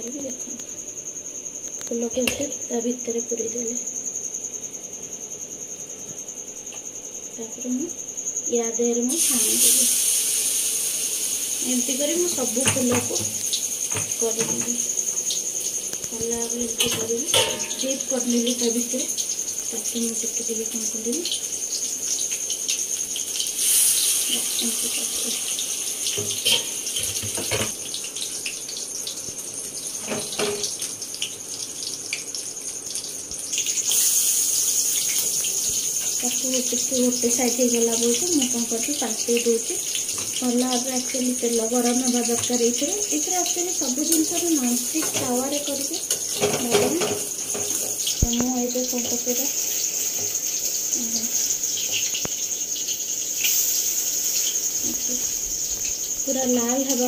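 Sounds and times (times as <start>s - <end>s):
batter sizzling in hot oil: 8.1s - 57.0s
knocks on metal pan: 12.6s - 14.8s, 16.8s - 17.8s
steel spatula tap: 16.8s - 17.8s.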